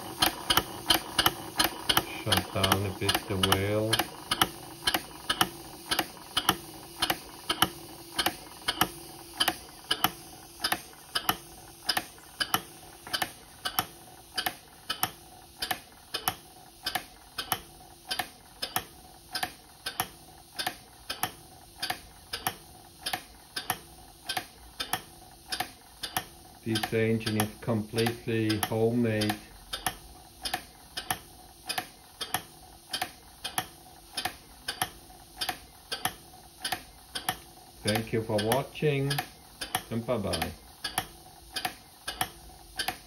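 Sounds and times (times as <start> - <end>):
steam engine valves clicking: 0.0 - 43.0.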